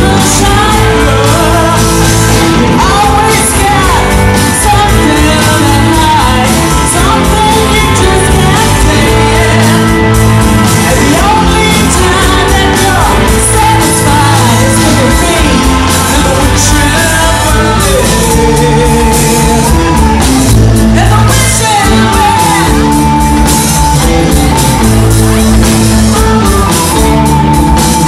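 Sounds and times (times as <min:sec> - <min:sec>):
live band playing amplified music: 0:00.0 - 0:28.0
person singing: 0:00.0 - 0:28.0.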